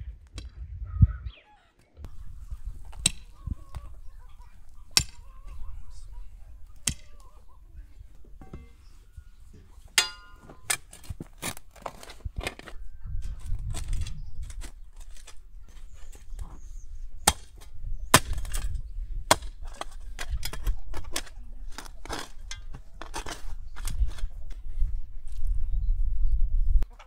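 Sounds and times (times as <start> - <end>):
spade cutting into earth: 2.0 - 4.1, 4.7 - 5.6, 6.7 - 7.3, 10.0 - 16.4, 17.2 - 24.4
blade chopping wood: 17.2 - 18.7, 19.3 - 21.3.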